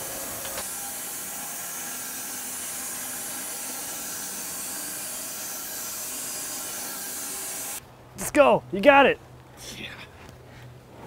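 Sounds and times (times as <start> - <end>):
bandsaw blade sawing log: 0.0 - 7.8.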